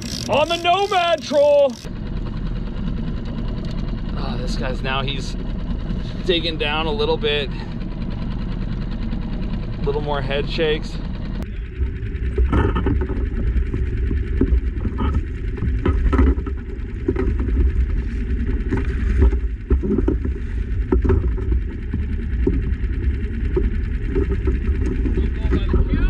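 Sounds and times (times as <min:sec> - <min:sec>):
wind rumbling on microphone: 0:11.0 - 0:26.0.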